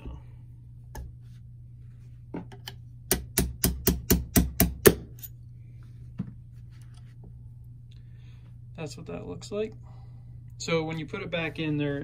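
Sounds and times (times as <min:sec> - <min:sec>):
hammer tapping on metal punch: 0:03.1 - 0:05.1.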